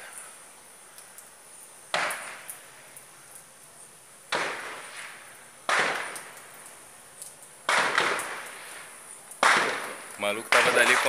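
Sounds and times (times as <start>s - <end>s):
gunshots echoing: 4.3s - 6.4s, 7.7s - 8.7s, 9.4s - 11.0s.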